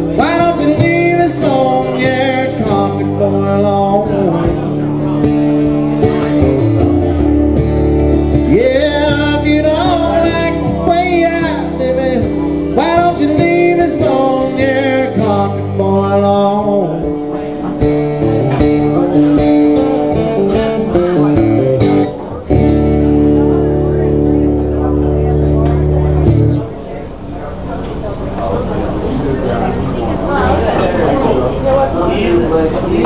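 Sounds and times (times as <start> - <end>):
man singing country song: 0.0 - 7.3, 8.0 - 25.1
acoustic guitar playing: 0.0 - 33.0.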